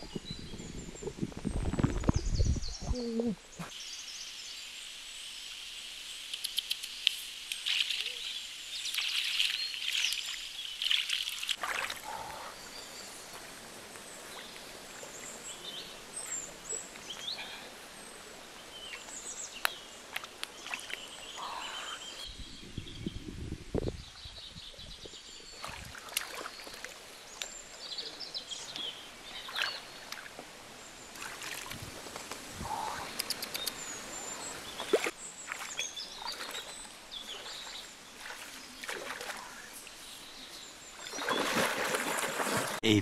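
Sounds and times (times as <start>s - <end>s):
birds chirping: 6.2s - 23.2s, 23.9s - 43.0s
water sloshing and splashing: 8.8s - 17.3s, 20.0s - 21.2s, 25.5s - 27.5s, 29.3s - 32.4s, 34.5s - 39.7s, 41.0s - 42.8s.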